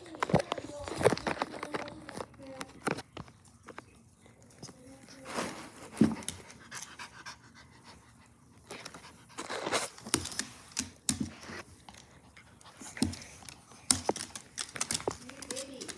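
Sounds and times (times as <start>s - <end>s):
dog breathing hard: 6.0s - 10.4s.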